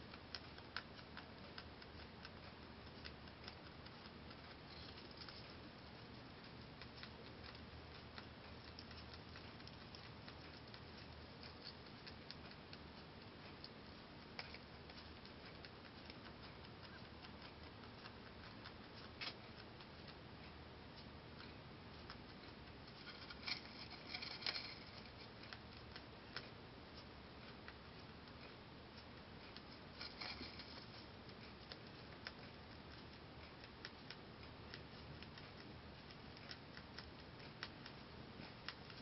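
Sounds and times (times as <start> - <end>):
rabbit chewing hay: 0.0 - 39.0.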